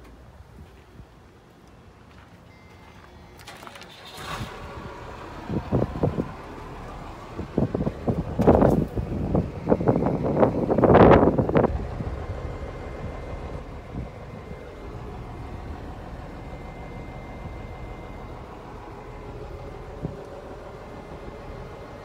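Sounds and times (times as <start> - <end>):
wind buffeting microphone: 4.2 - 22.0
low rumble: 4.4 - 22.0.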